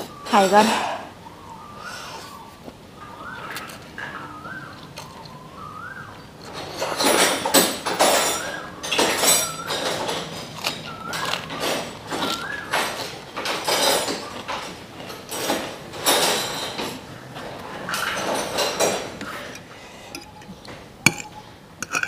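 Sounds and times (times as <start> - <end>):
chewing crisp lettuce: 3.5 - 5.5, 10.4 - 13.0.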